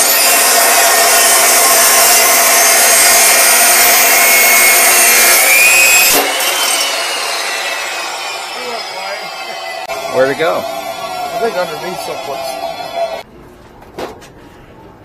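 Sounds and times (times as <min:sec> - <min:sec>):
saw cutting through metal: 0:00.0 - 0:13.2.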